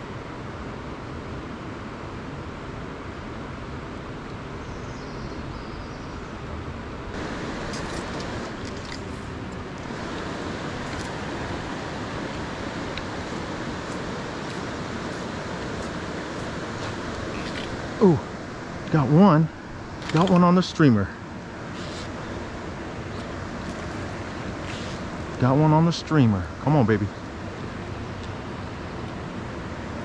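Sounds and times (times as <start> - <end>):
river flowing over rocks: 7.2 - 25.5.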